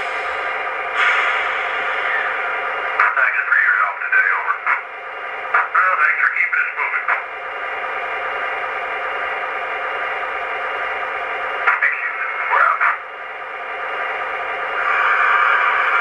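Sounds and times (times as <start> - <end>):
radio static hiss: 2.0 - 4.8, 5.4 - 7.2, 11.6 - 13.0
crew radio chatter: 3.0 - 4.8, 5.5 - 7.2, 11.6 - 13.0.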